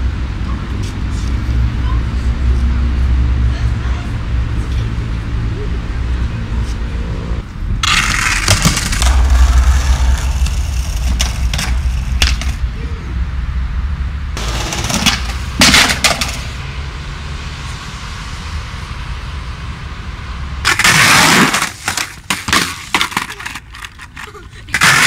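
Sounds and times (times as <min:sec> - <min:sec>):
skateboard wheels rolling on concrete: 0:00.0 - 0:25.0
rough noise burst: 0:07.4 - 0:22.9
skateboard clacking on ground: 0:07.8 - 0:09.1, 0:14.4 - 0:16.5, 0:20.7 - 0:25.0.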